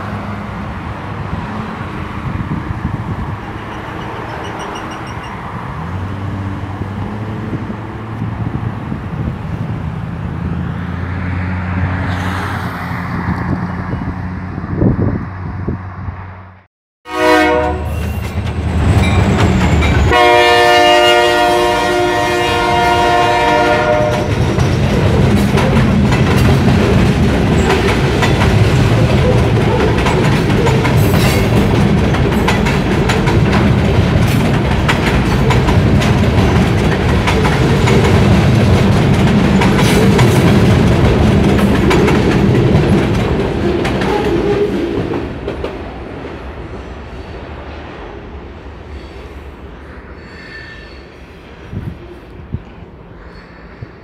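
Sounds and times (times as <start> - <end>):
train cars rumbling past: 0.0 - 54.0
locomotive horn blasts: 17.1 - 18.1, 20.0 - 24.3
wheels clacking over rail joints: 17.8 - 20.4, 23.1 - 46.5.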